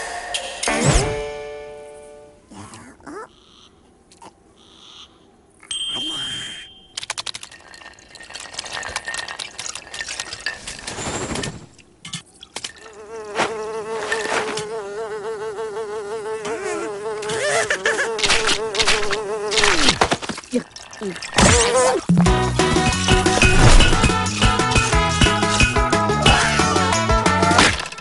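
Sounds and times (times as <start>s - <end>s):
cartoon clicks and clatters: 6.9s - 10.5s.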